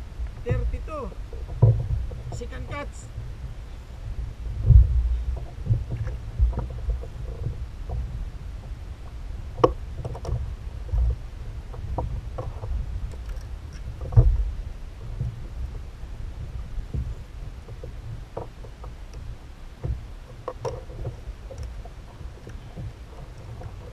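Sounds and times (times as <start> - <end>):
water and wind rumble: 0.0 - 23.9
gear knocking on plastic hull: 1.4 - 2.9.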